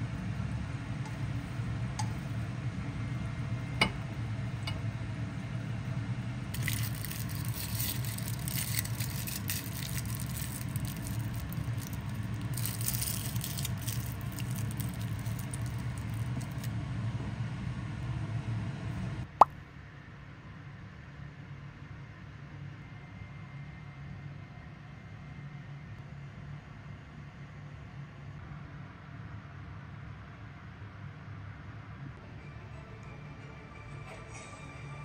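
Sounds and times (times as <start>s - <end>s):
steady low hum: 0.0s - 19.4s
aluminium foil crinkling: 6.6s - 16.7s.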